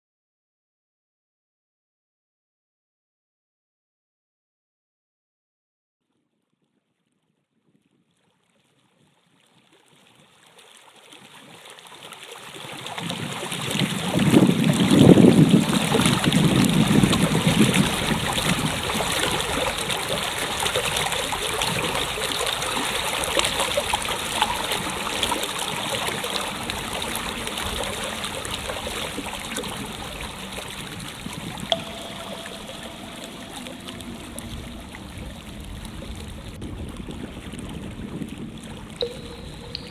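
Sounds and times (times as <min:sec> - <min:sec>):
rushing flowing water: 0:10.3 - 0:39.9.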